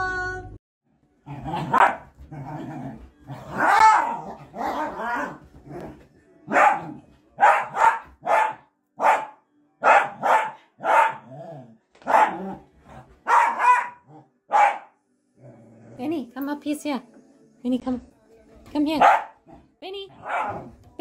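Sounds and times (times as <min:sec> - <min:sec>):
dog barking: 0:01.6 - 0:02.1, 0:03.5 - 0:05.4, 0:06.5 - 0:11.3, 0:12.0 - 0:12.6, 0:13.2 - 0:15.0, 0:19.0 - 0:19.4, 0:20.2 - 0:20.8.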